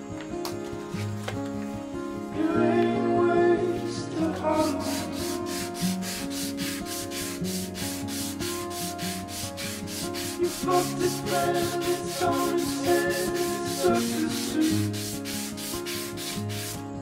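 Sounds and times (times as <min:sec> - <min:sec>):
background music: 0:00.0 - 0:17.0
sandpaper sanding a knife: 0:04.3 - 0:16.9.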